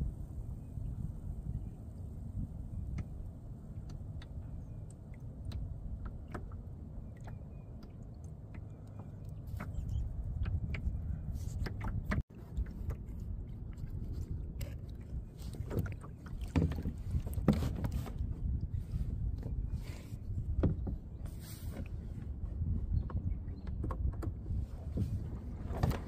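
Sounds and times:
wind rumbling on microphone: 0.0 - 26.0
water lapping against kayak hull: 2.3 - 26.0
light ticks and splashes: 2.8 - 18.7.

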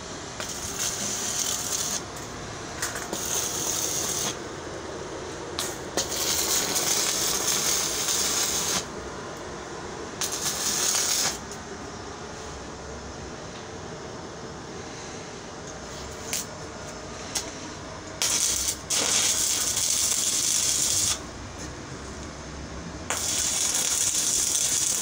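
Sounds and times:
welding arc crackling and hissing: 0.0 - 4.6, 5.3 - 9.0, 10.1 - 11.7, 15.8 - 22.2, 23.0 - 25.0.

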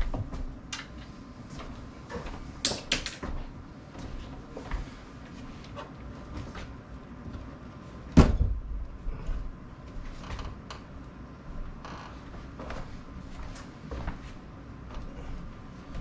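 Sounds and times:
loud thump: 8.2 - 8.7.

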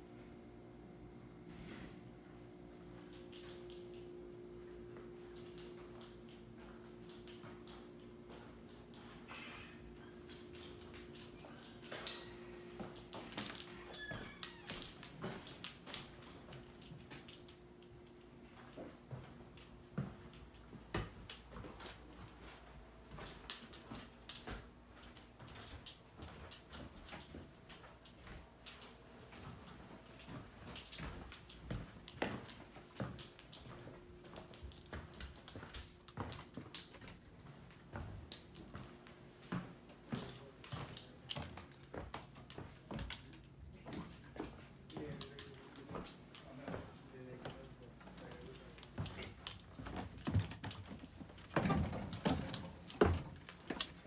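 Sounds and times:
faint steady hum: 0.0 - 54.0
footsteps: 4.9 - 54.0
footsteps on wooden floorboards: 29.3 - 45.1, 45.8 - 54.0.

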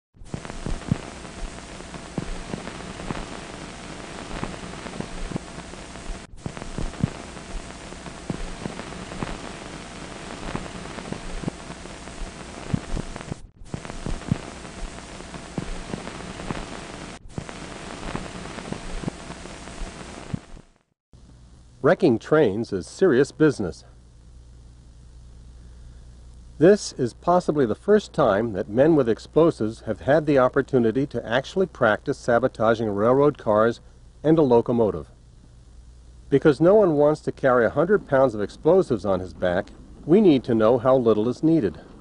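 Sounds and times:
faint hum: 0.2 - 42.0
film soundtrack hiss: 0.2 - 42.0
clicks and pops: 0.3 - 19.2.

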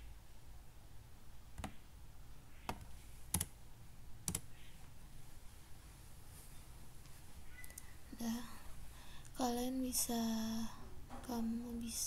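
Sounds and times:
computer keyboard key clicks: 2.7 - 3.5.

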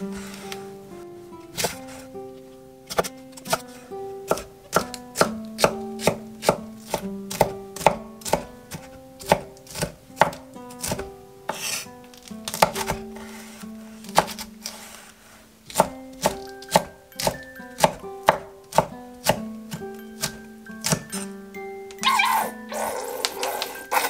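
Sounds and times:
knife chopping on wooden board: 1.6 - 2.1, 2.9 - 15.1, 15.7 - 21.3.

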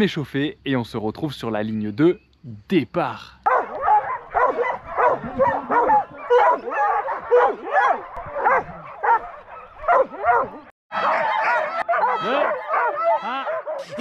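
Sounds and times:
dogs barking and yelping: 3.4 - 14.0.

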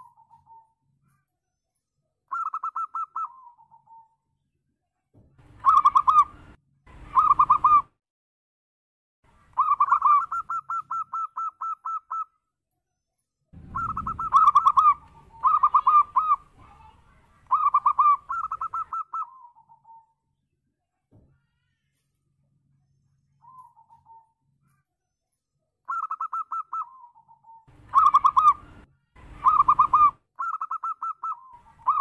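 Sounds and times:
dove cooing: 2.3 - 4.1, 5.6 - 6.4, 7.1 - 7.9, 9.6 - 12.2, 13.6 - 16.5, 17.5 - 20.1, 25.9 - 32.0.

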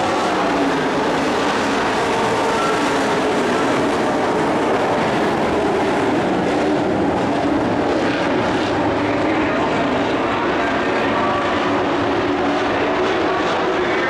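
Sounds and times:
race truck engines racing: 0.0 - 14.0.

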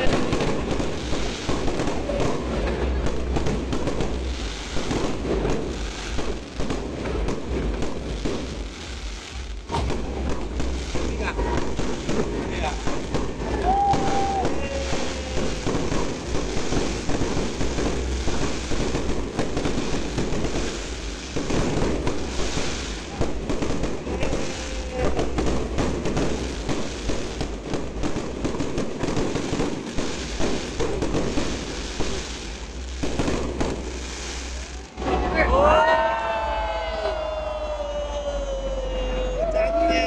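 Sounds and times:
firework whistling: 0.0 - 40.0
fireworks bursting and crackling: 0.0 - 40.0.

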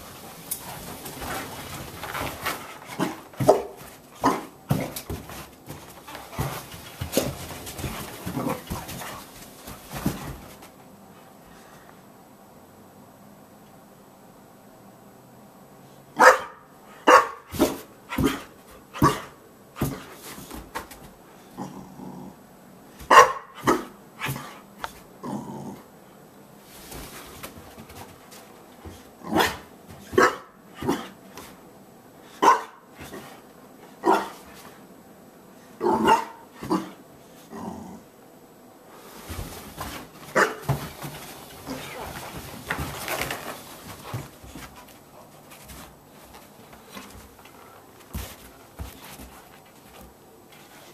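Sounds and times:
dog barking: 16.2 - 17.5, 23.1 - 23.9, 30.2 - 31.1, 32.4 - 32.8, 34.0 - 34.4, 35.9 - 36.9, 40.4 - 40.6.

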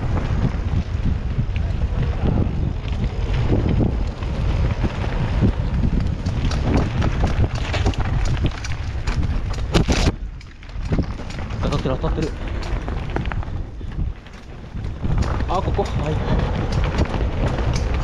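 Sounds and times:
bike clattering over bumps: 0.0 - 18.0
bike tyres rumbling on dirt: 0.0 - 18.0
wind buffeting microphone: 0.0 - 18.0.

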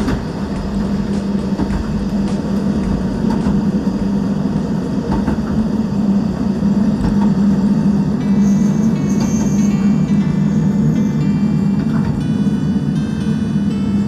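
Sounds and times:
train running: 0.0 - 14.0.

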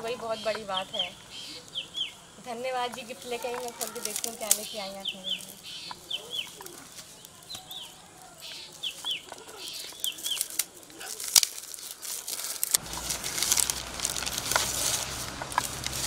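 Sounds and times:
birds chirping: 0.0 - 16.0
paper tearing and crinkling: 3.4 - 16.0.

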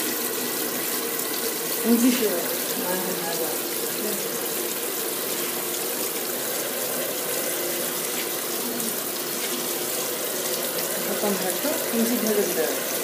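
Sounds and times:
water pouring into washing machine: 0.0 - 13.0.

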